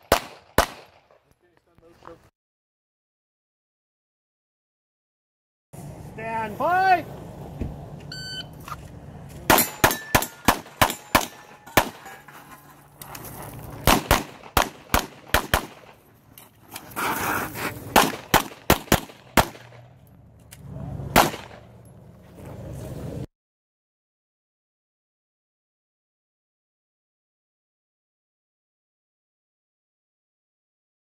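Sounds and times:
handgun shots: 0.0 - 1.0, 9.5 - 12.1, 13.8 - 16.0, 17.9 - 19.8, 21.2 - 21.6
shot timer beep: 8.1 - 8.5.

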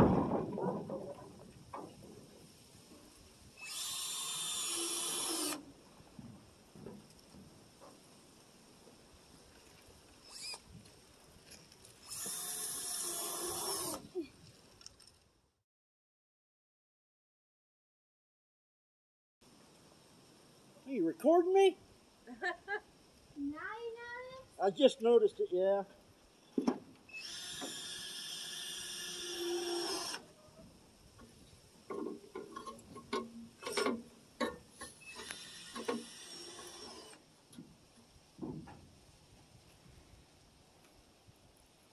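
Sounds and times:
cordless drill whirring: 3.6 - 5.6, 12.1 - 14.0, 27.2 - 30.2, 35.1 - 37.2.

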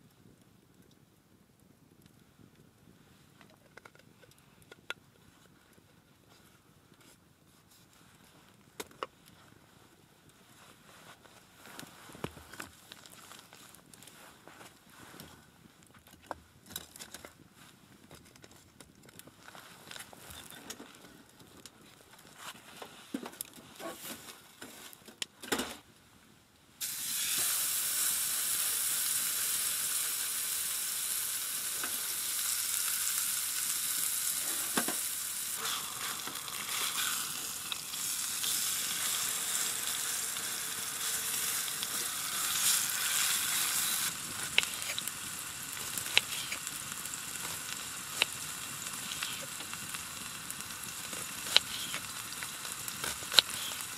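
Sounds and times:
food sizzling in pan: 26.8 - 53.9
small pops: 40.3 - 53.9.

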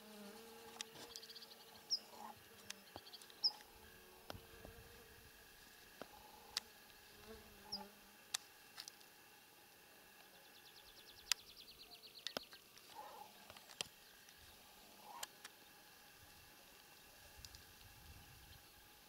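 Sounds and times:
insect-like buzz: 0.0 - 19.0
sharp clicks: 11.2 - 11.5.

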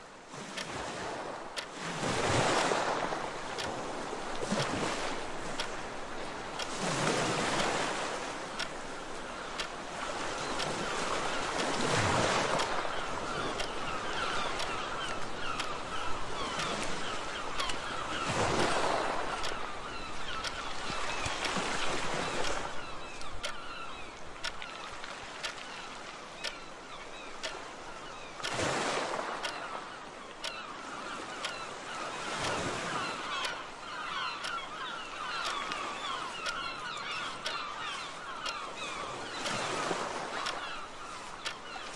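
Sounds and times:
sea waves washing in: 0.0 - 41.9
clock ticking: 2.5 - 2.7, 3.6 - 3.8, 6.6 - 7.8, 9.6 - 9.8, 13.6 - 13.8, 14.5 - 15.8, 19.4 - 19.6, 20.4 - 20.6, 35.4 - 35.7, 36.4 - 36.7, 37.4 - 37.6, 39.4 - 39.6
seagull calls: 29.5 - 41.9.

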